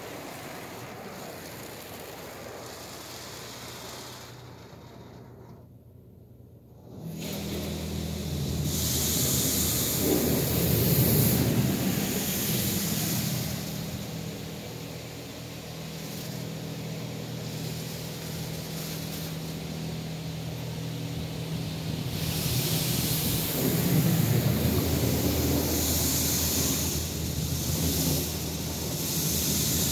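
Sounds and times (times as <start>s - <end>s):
water spray hitting car: 0.0s - 5.5s, 6.9s - 29.9s.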